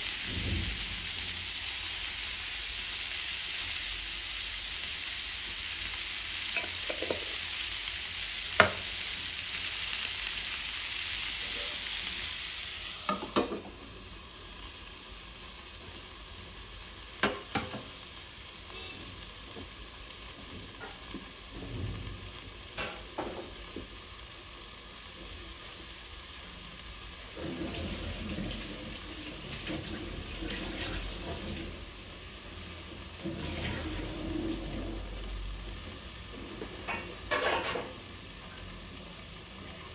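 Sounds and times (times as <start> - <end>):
vegetables sizzling in a frying pan: 0.0 - 39.9
metal lid clanking onto pan: 36.9 - 37.9.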